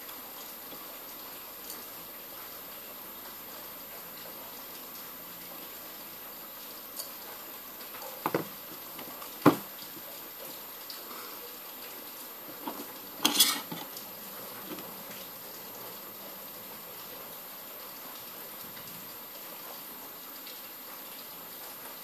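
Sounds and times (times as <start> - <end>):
tools clattering on wooden table: 12.6 - 13.9.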